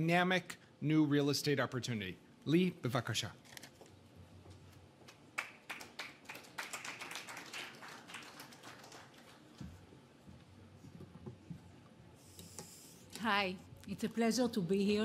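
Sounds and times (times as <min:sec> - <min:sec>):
faint audience applause: 0:05.3 - 0:09.8.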